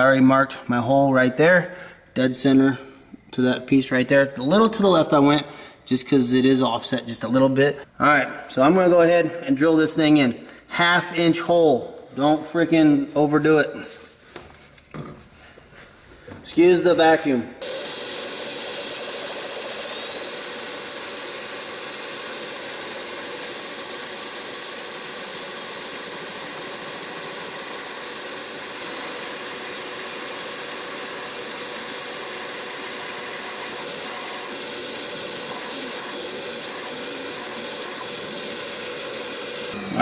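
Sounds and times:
shop vacuum running: 16.5 - 40.0
cordless drill cutting metal: 17.6 - 40.0.

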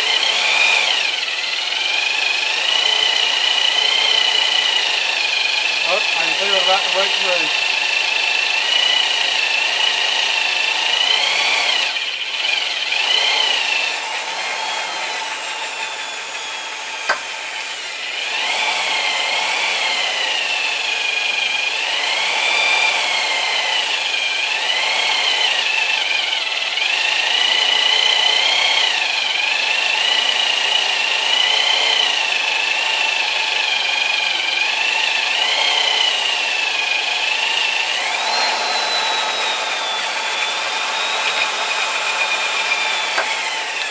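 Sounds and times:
electric drill whining: 0.0 - 43.9
sharp click: 17.1 - 17.3, 43.1 - 43.9.

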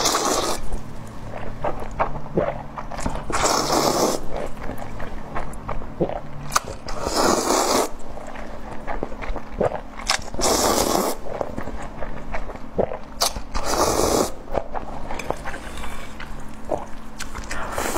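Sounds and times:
person slurping noodles: 0.0 - 0.8, 2.4 - 4.9, 6.8 - 8.0, 9.6 - 11.3, 12.8 - 14.4, 17.5 - 17.9
wet chewing: 0.0 - 17.9.

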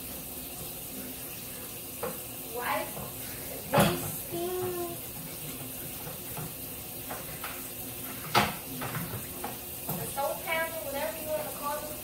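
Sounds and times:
dish clattering: 3.7 - 4.8
tap running into steel sink: 5.5 - 10.1.

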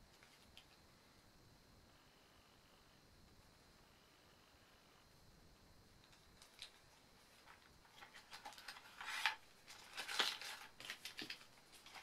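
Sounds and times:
plastic packaging rustling: 6.0 - 12.0.

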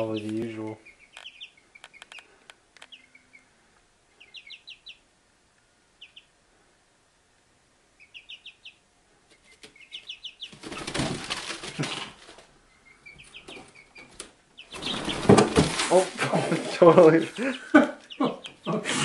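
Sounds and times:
chicks peeping: 0.0 - 5.1, 5.9 - 6.4, 7.9 - 19.0
wing flapping: 10.4 - 12.5, 13.4 - 16.8.

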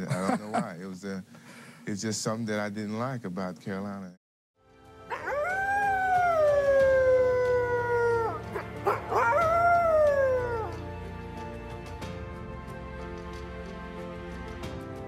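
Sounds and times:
quiet background music: 1.9 - 15.0
wolf howling: 5.0 - 11.0.

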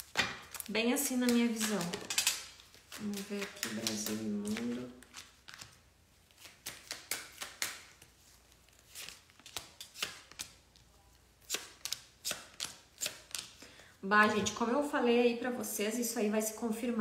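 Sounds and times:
cards being shuffled: 0.0 - 13.6.

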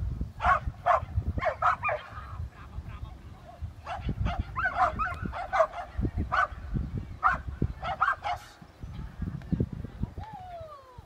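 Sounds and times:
dog barking: 0.4 - 2.2, 3.8 - 6.6, 7.2 - 8.6.

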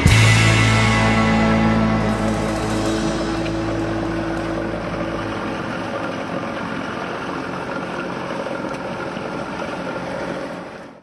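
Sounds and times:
boat engine running: 0.0 - 11.0.

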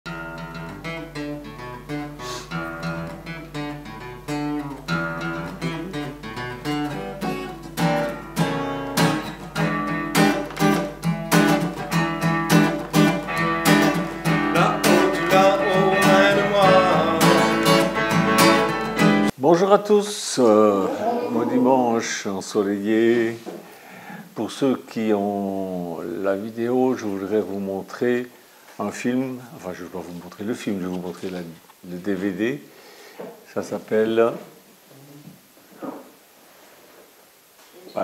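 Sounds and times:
acoustic guitar music: 0.1 - 19.4
wavering melody line: 13.2 - 19.3.

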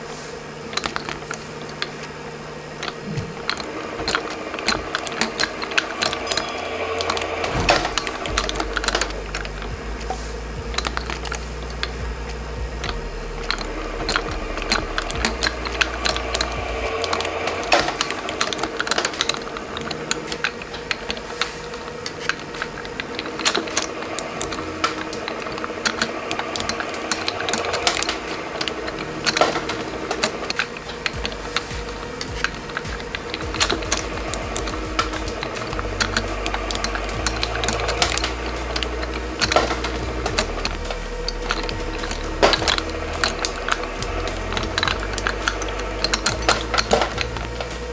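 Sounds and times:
low rumble: 6.7 - 21.4, 28.6 - 47.9.

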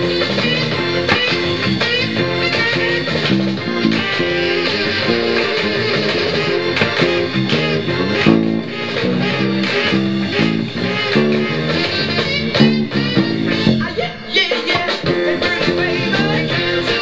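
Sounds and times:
electric bass line: 0.0 - 14.3, 15.0 - 17.0
rock and roll record: 0.0 - 17.0.

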